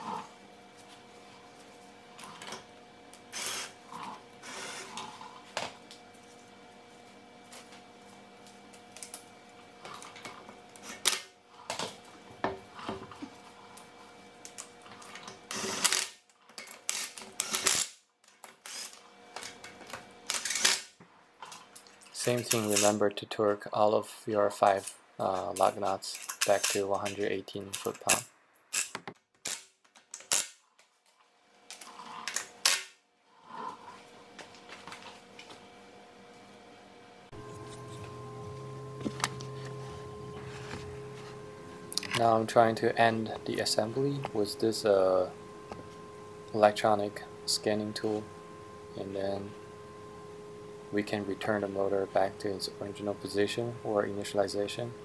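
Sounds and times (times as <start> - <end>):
power tool spinning lug nuts: 3.3 - 3.8, 4.4 - 5.1, 15.2 - 16.2, 16.8 - 20.9
faint steady hum: 31.1 - 55.0.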